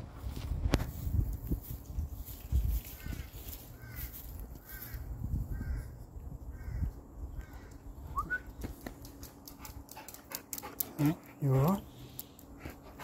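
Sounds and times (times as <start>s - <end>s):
harsh crow-like bird calls: 2.9s - 7.9s
rising whistled note: 8.1s - 8.5s.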